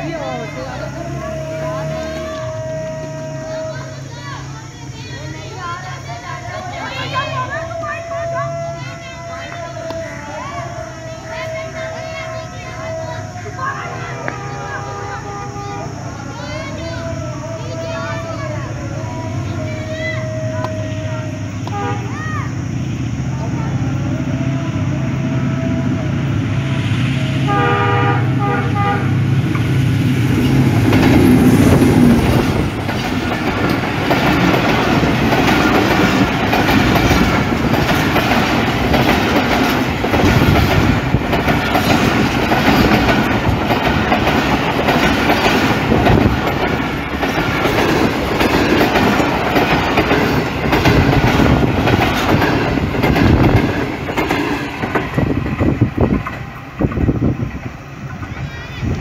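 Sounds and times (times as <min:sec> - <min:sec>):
diesel locomotive engine drone: 0:00.0 - 0:59.0
train horn: 0:00.9 - 0:04.4, 0:07.1 - 0:22.7, 0:23.8 - 0:29.5
train wheels clattering on rails: 0:29.4 - 0:59.0.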